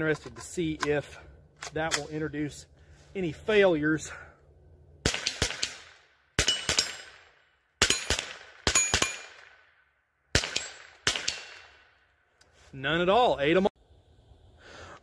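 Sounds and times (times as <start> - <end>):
rifle shots with echo: 5.0 - 9.7, 10.3 - 11.9.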